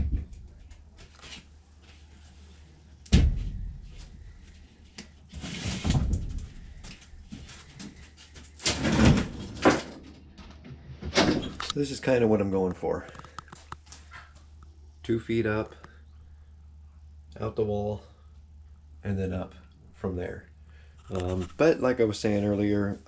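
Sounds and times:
board scraping and rustling: 0:05.3 - 0:10.3.

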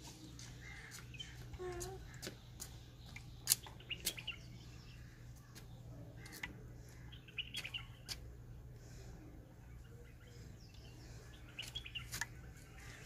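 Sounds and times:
faint bird chirps: 0:00.0 - 0:08.2
low steady hum: 0:00.0 - 0:13.0.

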